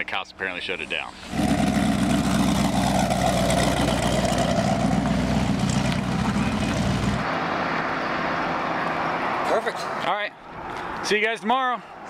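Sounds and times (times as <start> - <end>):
car engine droning: 1.1 - 9.8.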